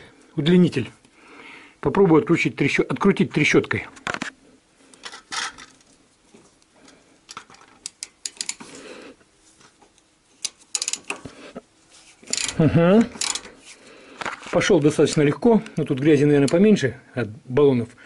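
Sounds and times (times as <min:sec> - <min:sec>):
hand ratchet clicking: 0:07.8 - 0:08.6, 0:10.4 - 0:11.2, 0:12.2 - 0:13.5.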